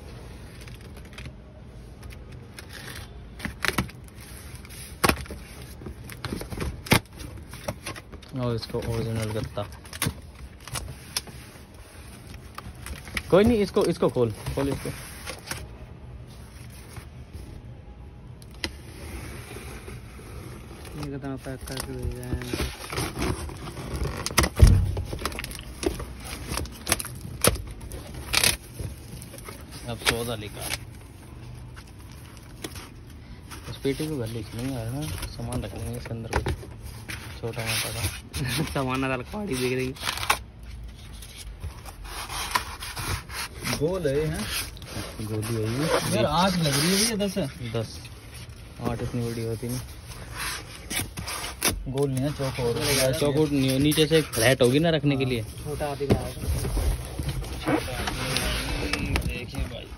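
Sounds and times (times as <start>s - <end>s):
packaging scraping rustle: 0.0s - 59.9s
packing tape tearing: 20.8s - 33.0s, 39.5s - 47.8s
heavy thump: 24.6s - 25.3s.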